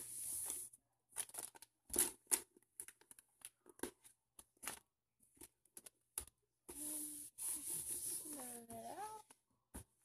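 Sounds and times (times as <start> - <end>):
hands rubbing contact paper: 6.7 - 9.2.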